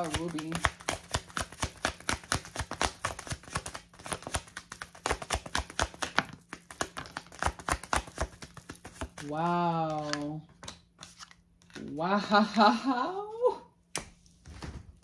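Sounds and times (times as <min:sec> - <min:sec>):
cards being shuffled: 0:00.0 - 0:12.0.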